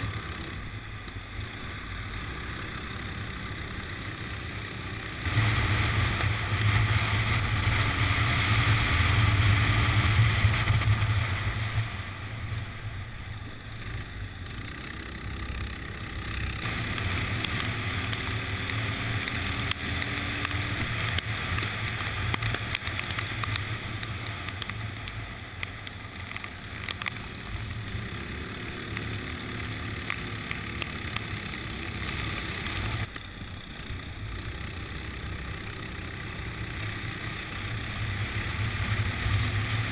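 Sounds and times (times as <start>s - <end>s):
go-kart engine running: 0.0s - 39.9s.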